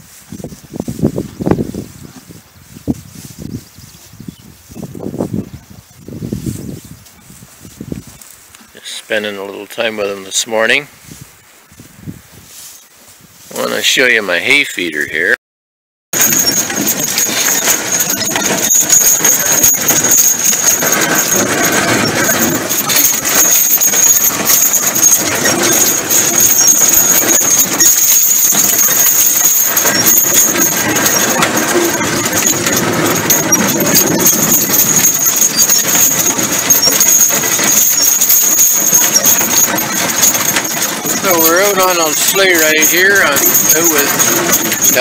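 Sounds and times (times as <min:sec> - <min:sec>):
sleigh runners and hooves in snow: 0:00.0 - 0:14.9, 0:16.2 - 0:45.0
harness clicks and knocks: 0:16.2 - 0:45.0.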